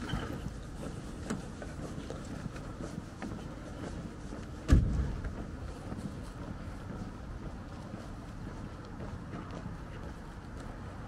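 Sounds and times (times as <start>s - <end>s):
faint footsteps on pavement: 0.0s - 11.0s
low city background: 0.0s - 11.0s
loud thud: 4.7s - 5.2s.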